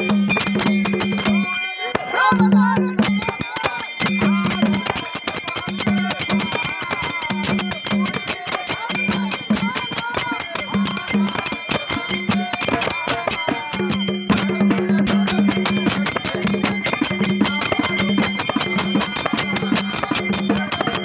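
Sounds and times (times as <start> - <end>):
bells ringing: 0.0 - 21.0
fast drumbeat: 0.0 - 21.0.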